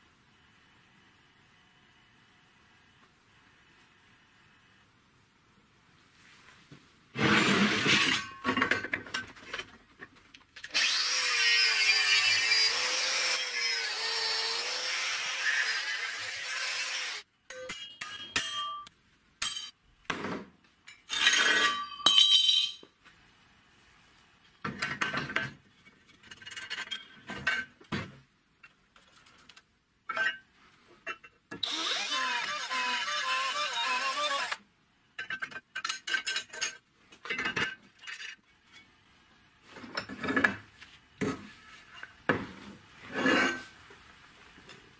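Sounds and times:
drilling: 10.7 - 17.2, 31.6 - 34.6
power tool cutting: 10.7 - 17.2, 31.6 - 34.6.

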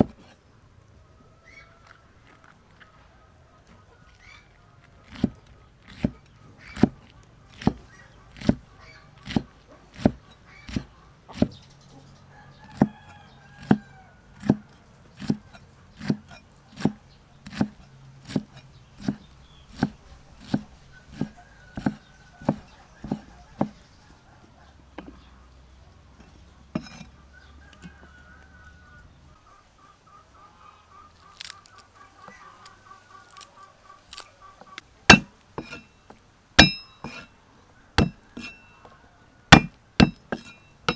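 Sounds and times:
cleaver chopping on wooden board: 5.1 - 11.6, 12.6 - 13.0, 13.6 - 13.8, 14.4 - 23.8, 25.0 - 25.2, 26.7 - 27.1, 35.1 - 35.8, 36.6 - 37.3, 38.0 - 38.6, 39.5 - 40.9.

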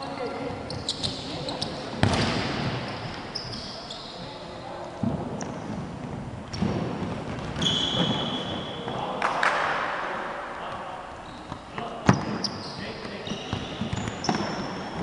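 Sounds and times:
high squeaks: 0.7 - 1.9, 2.8 - 4.4, 7.6 - 8.6, 11.2 - 15.0
ball thuds on wooden court: 2.0 - 2.8.

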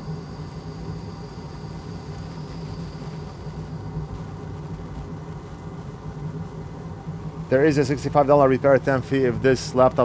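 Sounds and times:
workbench equipment humming: 0.0 - 7.9
faint high whine: 0.0 - 10.0.

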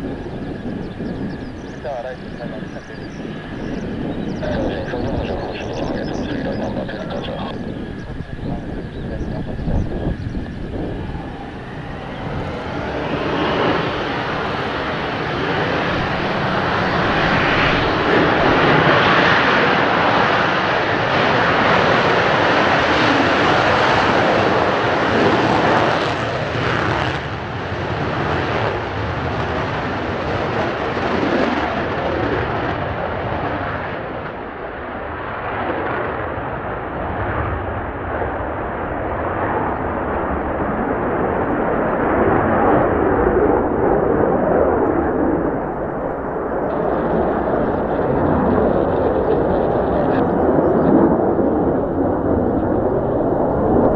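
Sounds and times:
jet engine roar: 0.0 - 53.9.

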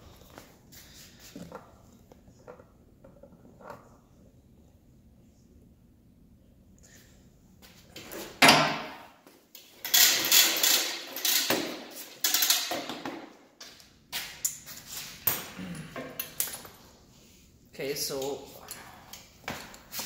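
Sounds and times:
air hose clatter and rushing: 9.8 - 12.9.

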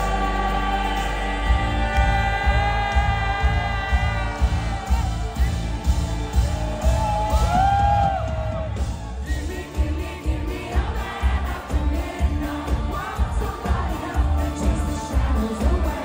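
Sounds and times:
band playing pop music: 0.0 - 16.0
woman singing into a microphone: 9.3 - 16.0.

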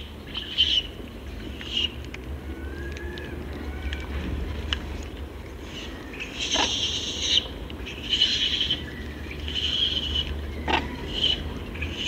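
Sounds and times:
monkeys harsh high calls: 9.5 - 12.0.

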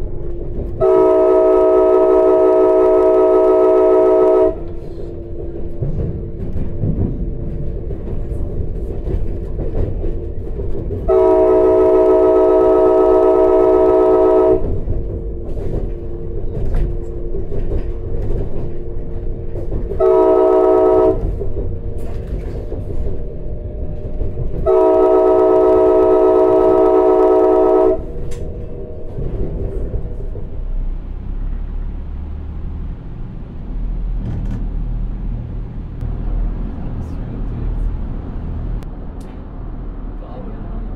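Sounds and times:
rails clickety-clack: 0.0 - 40.9
train rumble: 0.0 - 40.9
train air horn blasts: 0.8 - 5.2, 11.1 - 14.9, 19.9 - 21.4, 24.6 - 28.5.

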